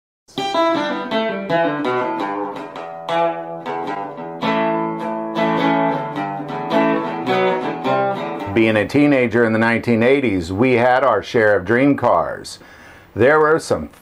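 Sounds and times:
guitar chords strummed: 0.3s - 10.4s.

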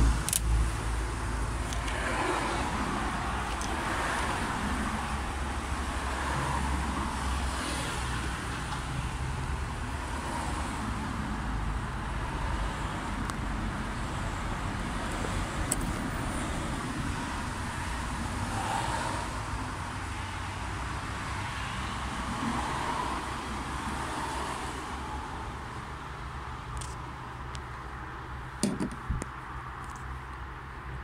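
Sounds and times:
road traffic noise: 0.0s - 31.0s
pliers pulling fuse clicks: 0.2s - 0.5s.

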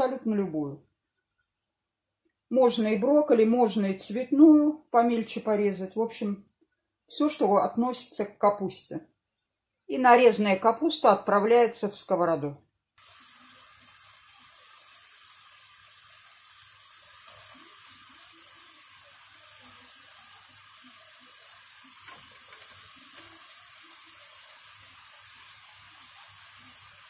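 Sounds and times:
vegetables sizzling in a frying pan: 13.0s - 27.0s.

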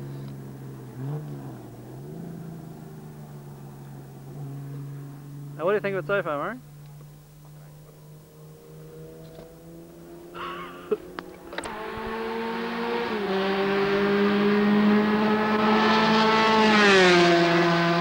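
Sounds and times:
racing car engine at full throttle: 0.0s - 18.0s
racing car passing by: 7.5s - 18.0s.

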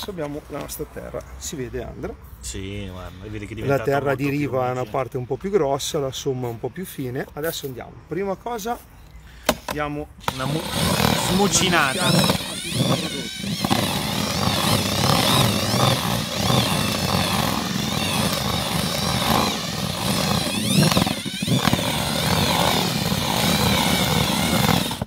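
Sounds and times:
cordless drill mixing dry earth: 10.2s - 25.0s.

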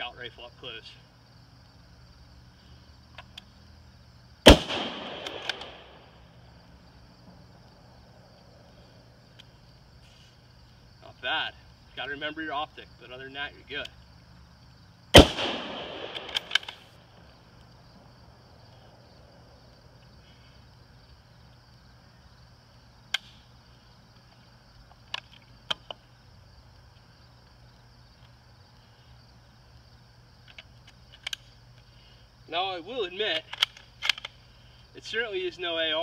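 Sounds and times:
faint clicks of rifle handling: 3.1s - 3.6s, 4.7s - 5.9s, 16.0s - 17.0s, 23.1s - 23.6s, 24.2s - 26.1s, 30.4s - 32.1s, 33.3s - 34.8s
rifle shot: 4.4s - 6.2s, 15.1s - 17.0s.

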